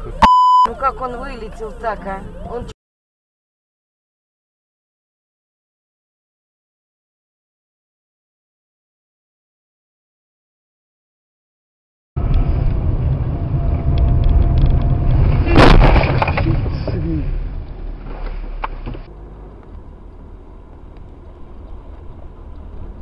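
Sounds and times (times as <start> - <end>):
road and engine noise: 0.0 - 2.8, 12.2 - 23.0.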